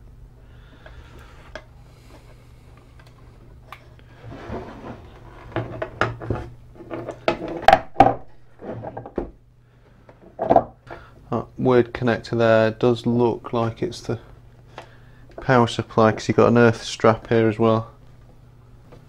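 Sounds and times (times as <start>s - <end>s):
rubbing and scraping on bench: 4.1s - 7.7s, 8.5s - 9.2s.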